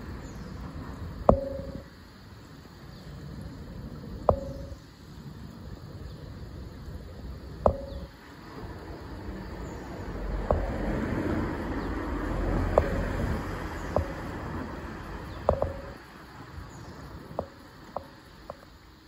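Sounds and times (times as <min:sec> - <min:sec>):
sharp ringing clicks: 0:01.3 - 0:01.9, 0:04.3 - 0:04.8, 0:07.7 - 0:08.2, 0:15.5 - 0:16.0
vehicle passing rumble: 0:08.2 - 0:17.9.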